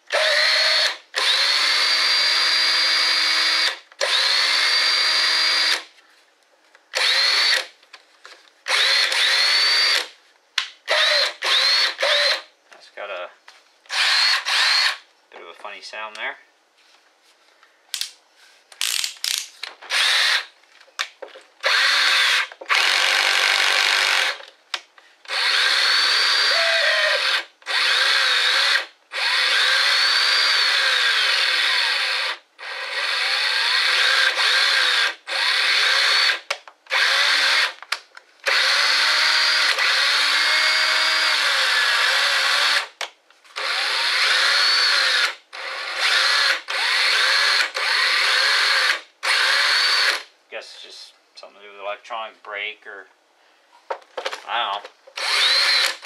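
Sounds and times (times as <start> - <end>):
cordless drill running: 0.1 - 5.8, 6.9 - 7.7, 8.7 - 10.1, 10.9 - 12.4, 13.9 - 15.0, 19.9 - 20.5, 21.6 - 24.4, 25.3 - 37.8, 38.5 - 42.9, 43.6 - 50.3, 55.2 - 56.0.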